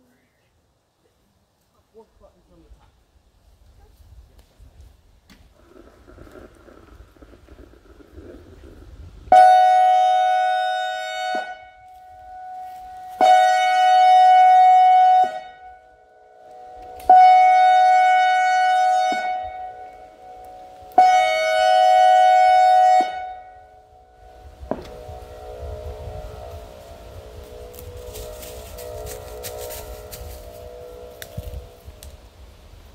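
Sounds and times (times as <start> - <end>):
warning siren blasts: 9.2 - 32.9.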